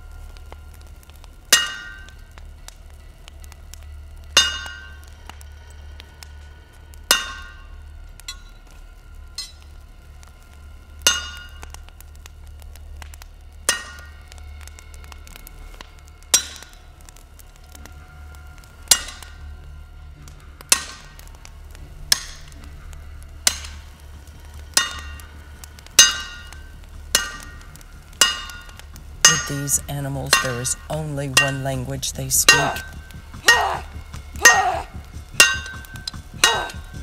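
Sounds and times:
low steady hum: 0.0s - 37.0s
hammer striking metal on anvil: 1.6s - 2.0s, 4.4s - 4.9s, 7.1s - 7.6s, 9.4s - 9.6s, 32.5s - 37.0s.

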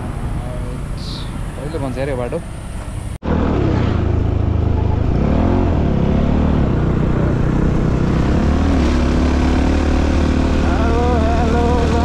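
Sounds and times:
motorcycle engine running: 2.5s - 12.0s.

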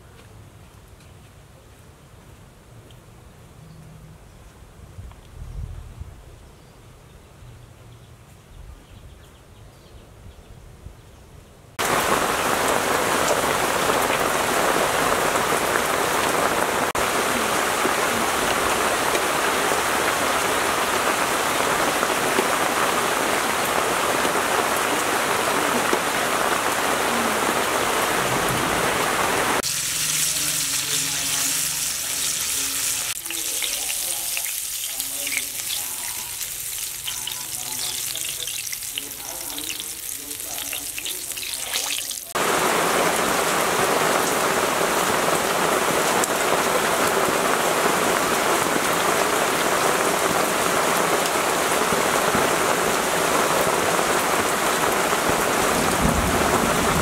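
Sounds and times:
hot oil sizzling: 11.8s - 46.0s
heavy rain on leaves: 11.8s - 57.0s.

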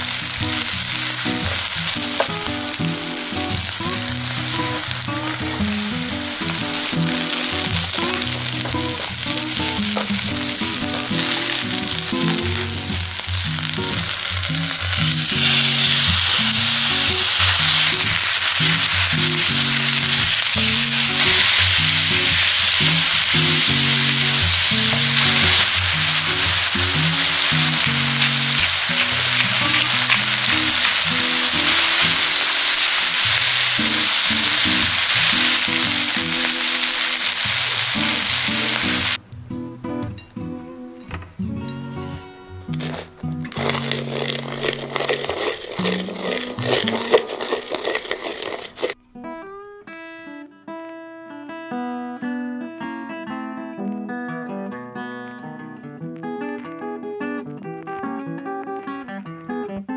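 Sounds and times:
pork sizzling in a pan: 0.0s - 39.2s, 42.7s - 49.0s
background music: 0.0s - 47.0s
guitar playing plucked notes: 0.0s - 48.1s, 48.9s - 59.9s.

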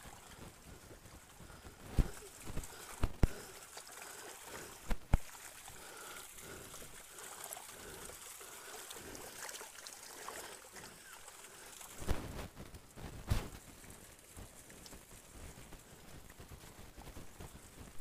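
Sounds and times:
water trickling: 0.0s - 18.0s.

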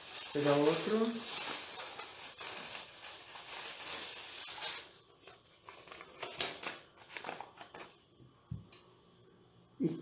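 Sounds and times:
paper crinkling: 0.0s - 8.0s.

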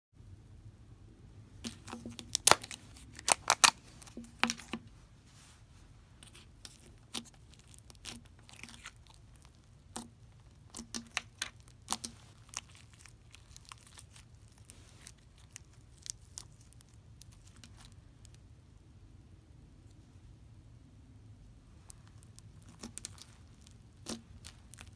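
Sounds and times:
slime squeezed crackling and popping: 1.6s - 4.7s, 6.2s - 18.4s, 21.8s - 24.9s.

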